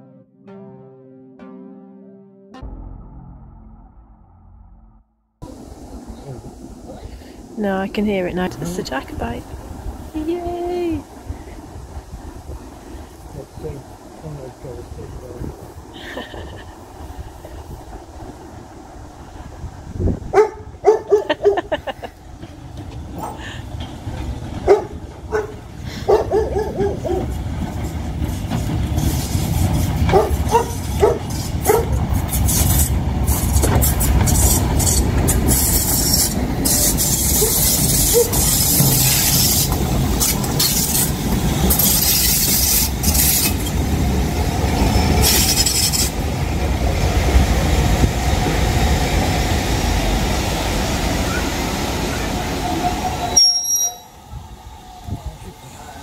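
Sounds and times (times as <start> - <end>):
bursts of hissing steam: 5.4 - 10.2, 10.9 - 20.1, 27.3 - 53.3
steam locomotive rumbling: 5.4 - 56.0
train coaches rolling over rails: 5.4 - 56.0.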